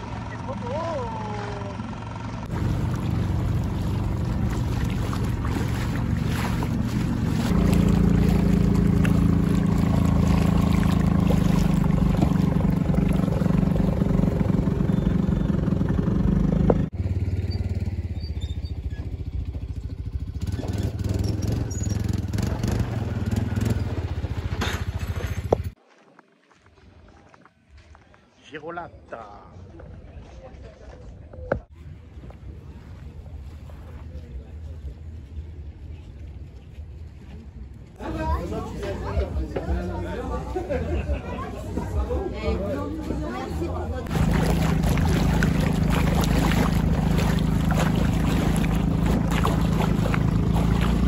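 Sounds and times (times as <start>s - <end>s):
outboard motor running: 0.0s - 25.8s, 38.0s - 51.0s
water noise: 2.4s - 16.9s, 20.4s - 27.3s, 31.6s - 51.0s.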